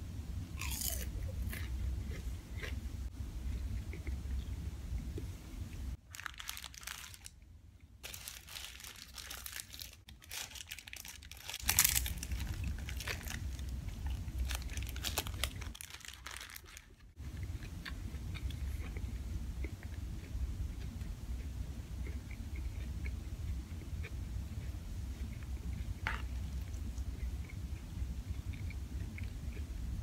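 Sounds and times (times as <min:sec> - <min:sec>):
paper wrapper crinkling: 0:06.0 - 0:07.4, 0:08.0 - 0:17.2
chewing: 0:17.3 - 0:29.8.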